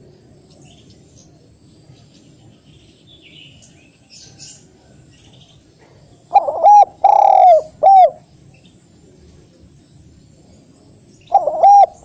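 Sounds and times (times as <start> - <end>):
small birds chirping: 0.0 - 12.0
dove cooing: 5.9 - 8.2, 11.3 - 12.0.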